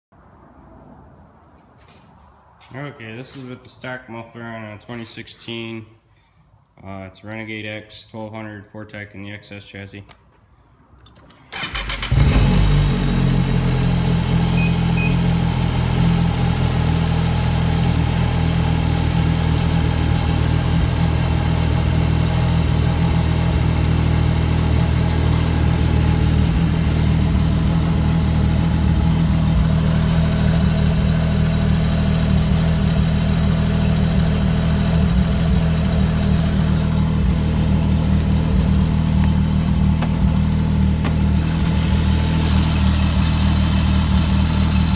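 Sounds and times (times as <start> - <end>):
snowmobile engine starting and idling: 11.1 - 44.9.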